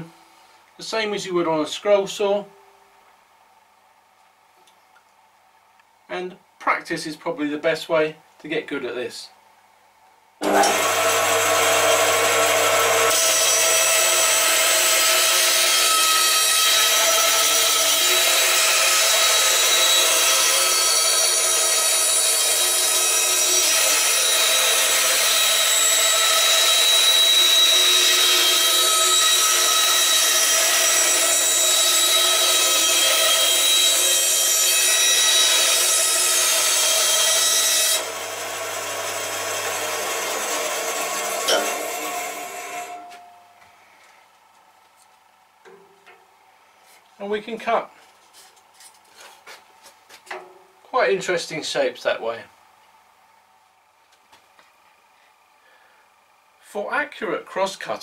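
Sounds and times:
band saw cutting wood: 0:10.4 - 0:43.2.

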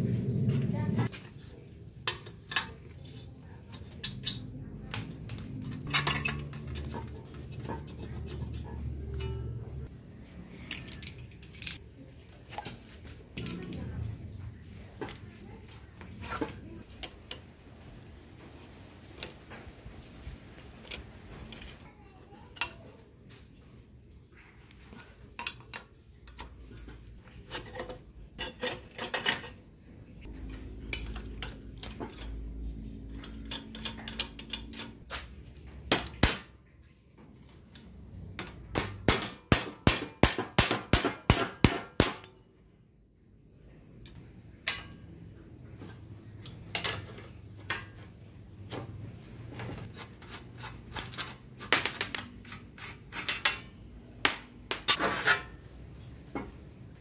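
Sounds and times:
metal parts clinking and rattling: 0:02.0 - 0:09.9, 0:10.5 - 0:11.8, 0:24.9 - 0:35.2, 0:50.8 - 0:55.5.

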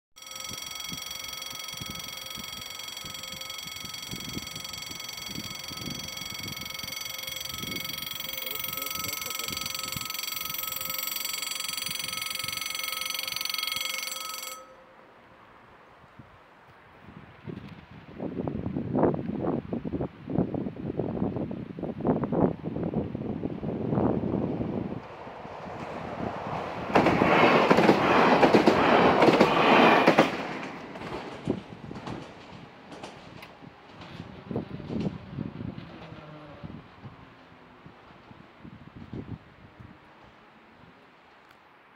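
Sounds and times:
level-crossing warning bell: 0:00.2 - 0:15.5
train passing close by: 0:00.2 - 0:16.2, 0:22.5 - 0:41.4.

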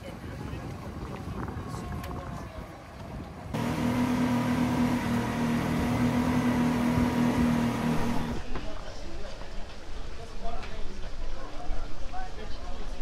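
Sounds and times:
machine hum with tones: 0:03.6 - 0:08.4.

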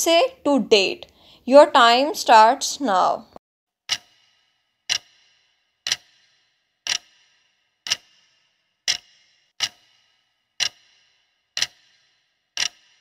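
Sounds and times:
clock ticks with bright ring: 0:03.9 - 0:13.0.

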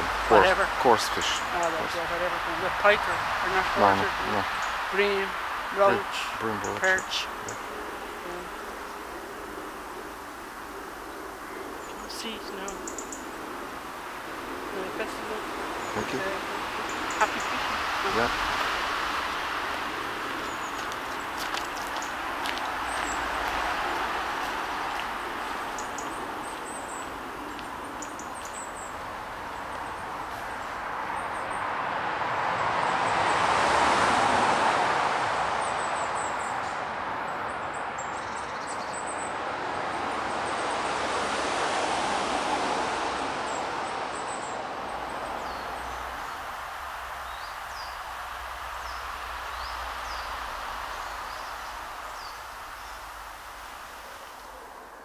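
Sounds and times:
distant rushing noise: 0:00.0 - 0:37.2, 0:39.2 - 0:55.0
high bird chirps: 0:24.6 - 0:29.0.

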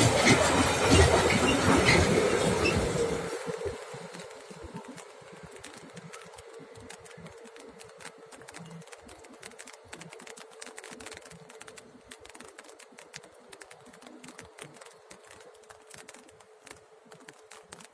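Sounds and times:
raindrops on umbrella: 0:03.3 - 0:17.9.

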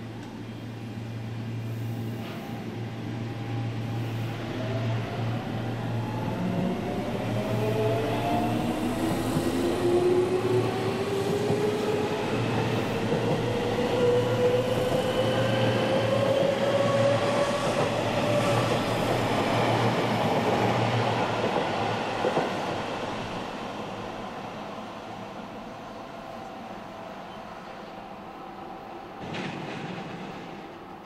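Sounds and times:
train running on rails: 0:00.0 - 0:31.0.

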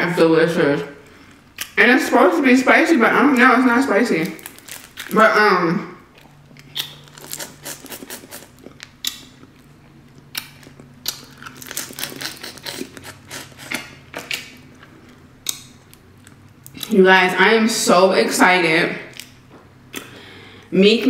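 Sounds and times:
crawfish shells cracking: 0:04.2 - 0:05.2, 0:06.2 - 0:14.6
chewing: 0:06.1 - 0:16.9.

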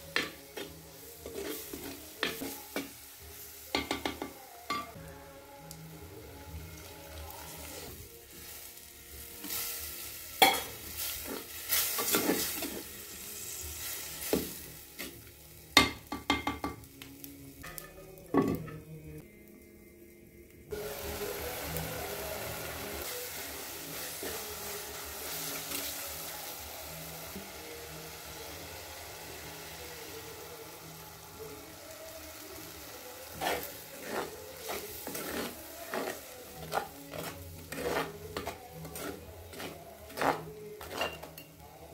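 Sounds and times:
curry simmering hiss: 0:00.0 - 0:15.8, 0:20.6 - 0:41.9
metal spoon scraping clay pot: 0:33.4 - 0:41.4.

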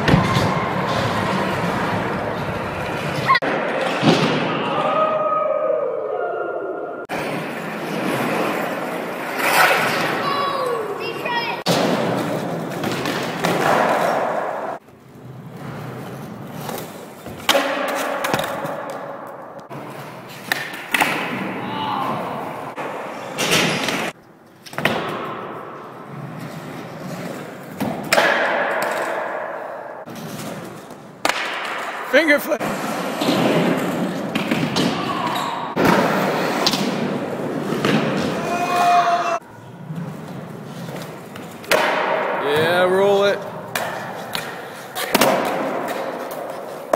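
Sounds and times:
skateboard wheels rolling: 0:00.0 - 0:04.5, 0:07.1 - 0:31.8, 0:32.6 - 0:38.9, 0:39.6 - 0:42.6
skateboard landing clack: 0:27.8 - 0:29.6, 0:41.6 - 0:42.4.

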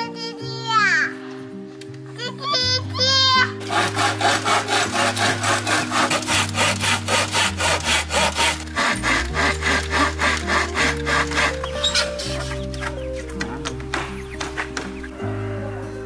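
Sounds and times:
hand saw cutting wood: 0:03.6 - 0:15.0.

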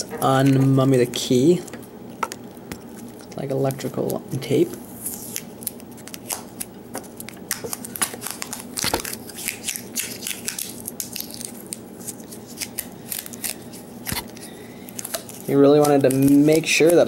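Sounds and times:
tape peeling crackles: 0:05.0 - 0:17.0.

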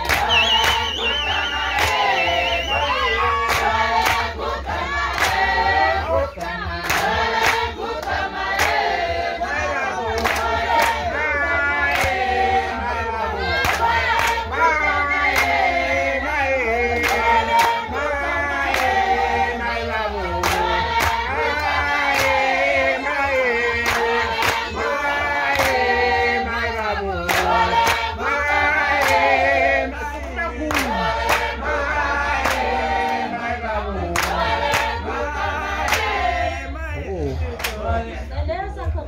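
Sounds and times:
drum or handclap beats: 0:00.0 - 0:09.3, 0:10.1 - 0:11.2, 0:11.8 - 0:12.6, 0:13.4 - 0:19.5, 0:20.3 - 0:26.3, 0:27.2 - 0:33.2, 0:34.1 - 0:36.5, 0:37.5 - 0:37.9
group singing in chorus: 0:00.0 - 0:38.6.

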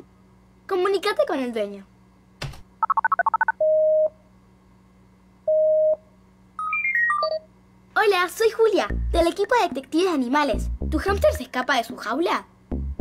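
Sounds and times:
dialing beeps: 0:02.8 - 0:04.1.

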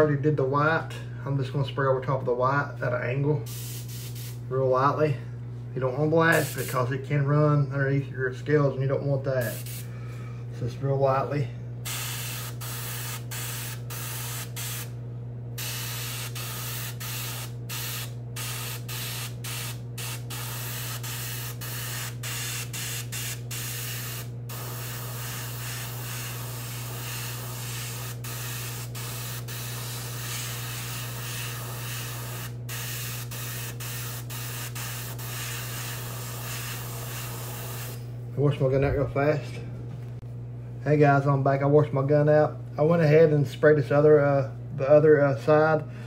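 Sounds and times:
steady low hum: 0:00.0 - 0:46.0
airbrush spraying paint hiss: 0:03.5 - 0:04.4, 0:06.3 - 0:06.8, 0:09.4 - 0:09.9, 0:15.6 - 0:38.0.

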